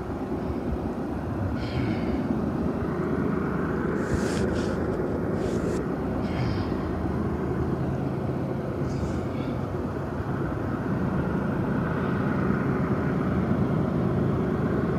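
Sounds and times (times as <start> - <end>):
low rumble of distant engines: 0.0 - 14.9
finger brushing microphone: 4.0 - 5.8.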